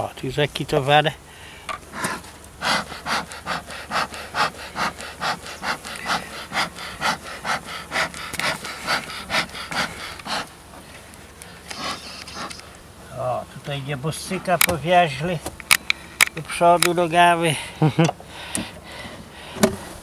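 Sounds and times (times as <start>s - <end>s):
metal tool scraping wood: 11.6s - 12.6s.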